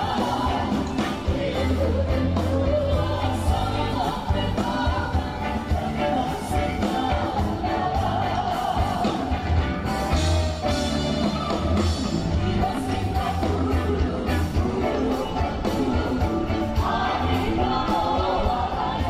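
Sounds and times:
song with bass and vocals: 0:00.0 - 0:19.0.

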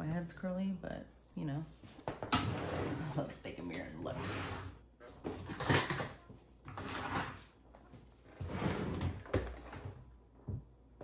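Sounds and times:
objects scraped and moved: 0:01.7 - 0:10.0.

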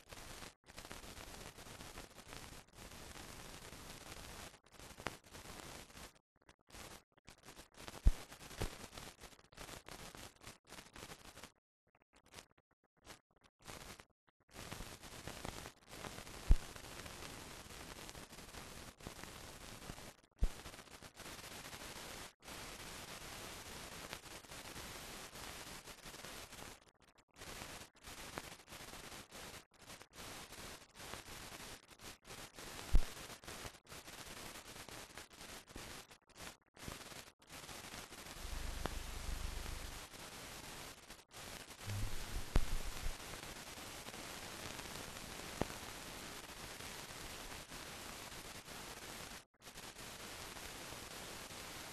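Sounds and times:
film transfer hiss: 0:32.6 - 0:51.9.

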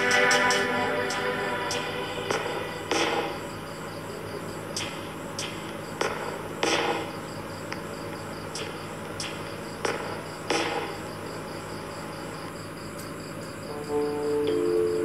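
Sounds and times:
insect-like chirping: 0:00.0 - 0:15.0
sharp swishing clicks: 0:08.5 - 0:10.8.

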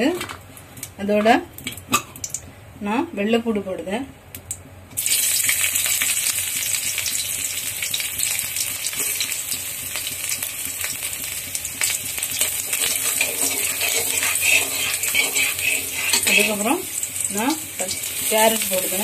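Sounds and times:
garlic sizzling in hot oil: 0:05.0 - 0:19.0
spatula stirring: 0:11.9 - 0:19.0.

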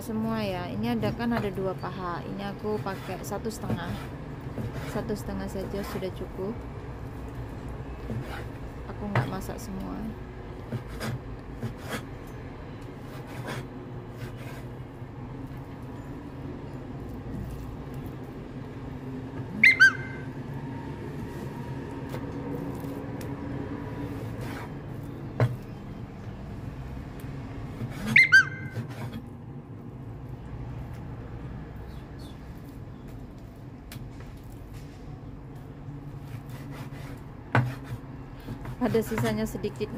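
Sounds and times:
cleaver cutting raw chicken: 0:02.5 - 0:10.0, 0:12.8 - 0:14.8, 0:17.0 - 0:18.4, 0:21.2 - 0:25.9, 0:27.2 - 0:29.4, 0:36.0 - 0:39.6
high-pitched double chirp: 0:19.6 - 0:20.3.

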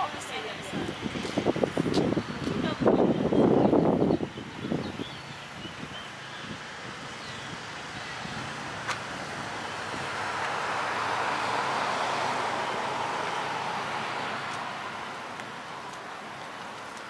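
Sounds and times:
car passing by: 0:05.4 - 0:17.0.

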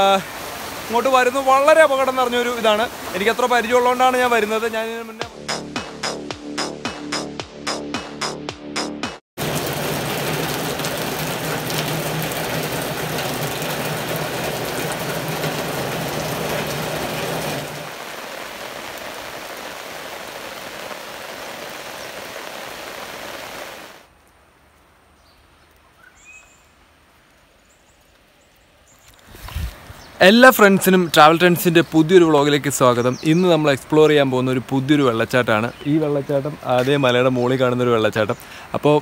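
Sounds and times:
heavy rain falling: 0:00.0 - 0:05.2, 0:09.4 - 0:24.1, 0:30.3 - 0:39.0.

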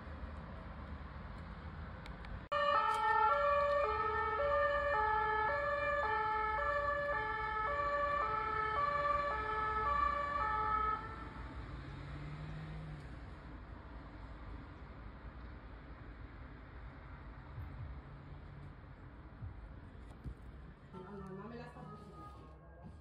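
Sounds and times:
low traffic rumble: 0:00.0 - 0:23.0
police car two-tone siren: 0:02.5 - 0:11.5.

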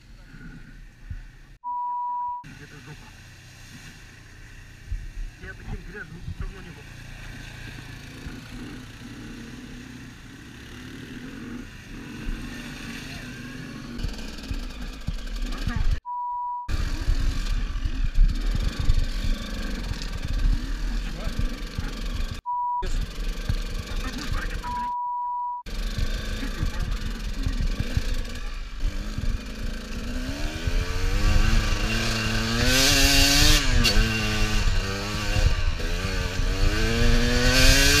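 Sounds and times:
off-road vehicle engine running: 0:02.4 - 0:38.0.

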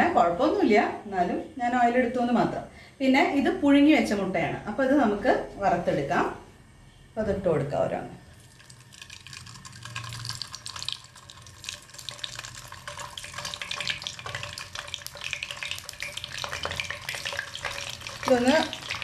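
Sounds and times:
hot oil sizzling and crackling: 0:08.2 - 0:19.0.

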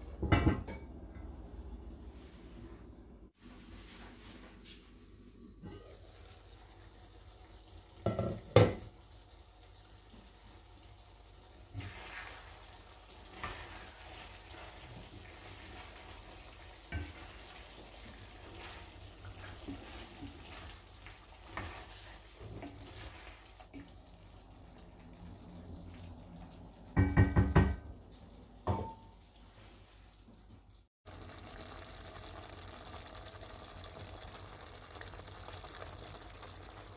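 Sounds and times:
wooden spoon scraping pot: 0:13.2 - 0:23.9.

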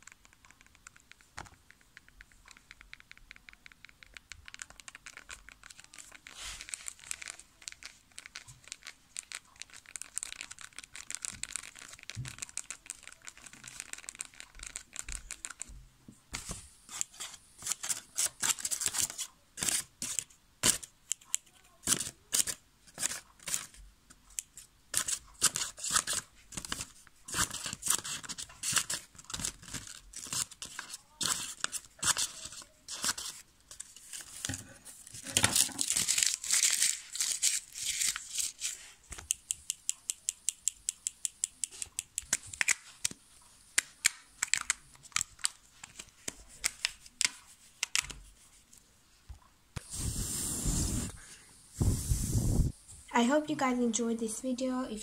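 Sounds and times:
scratching on plastic bottle: 0:24.9 - 0:38.9.

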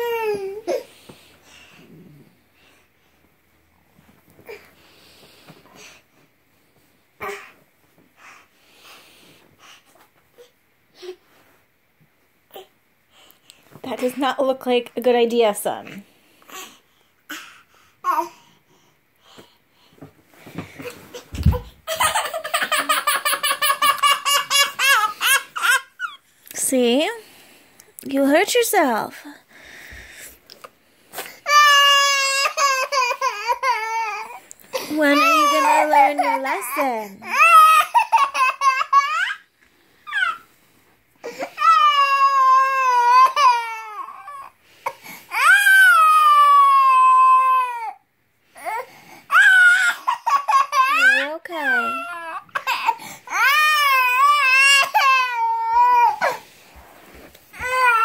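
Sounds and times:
toddler crying: 0:00.0 - 0:00.8, 0:21.4 - 0:26.2, 0:31.4 - 0:39.5, 0:40.1 - 0:40.4, 0:41.3 - 0:44.5, 0:45.3 - 0:48.0, 0:48.6 - 0:56.4, 0:57.5 - 0:58.0
toddler falling on carpet thump: 0:21.3 - 0:21.8.

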